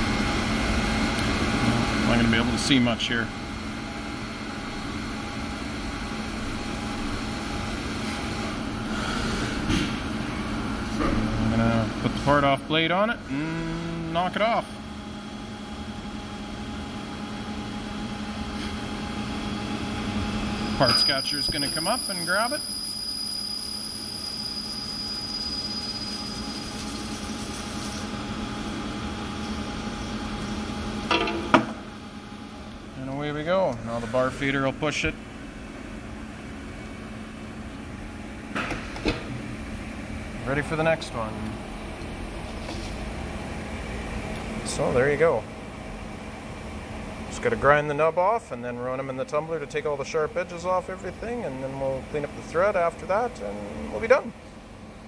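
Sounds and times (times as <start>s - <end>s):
thin high whine: 20.7s - 28.2s
loud ringing metal clank: 31.1s - 31.9s.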